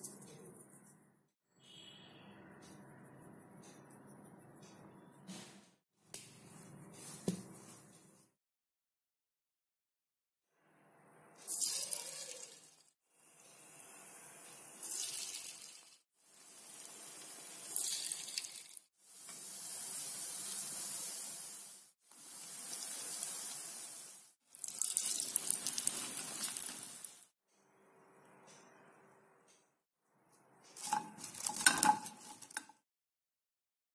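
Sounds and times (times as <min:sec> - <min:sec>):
fritters deep-frying in oil: 0:13.4 - 0:27.3.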